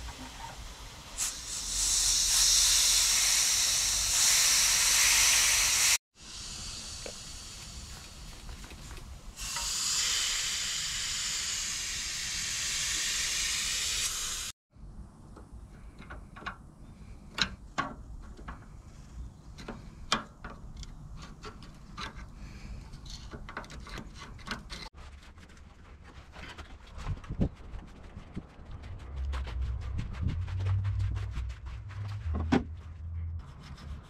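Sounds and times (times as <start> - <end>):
loud steady hiss: 0.0 - 14.6
hand tools clicking and scraping: 17.2 - 26.8.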